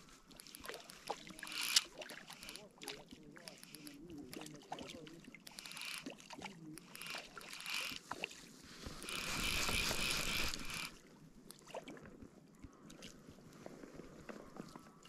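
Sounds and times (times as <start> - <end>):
fly reel buzzing: 0.0 - 4.0, 5.4 - 11.0
fly reel ratchet clicking: 0.0 - 8.2, 9.0 - 11.0.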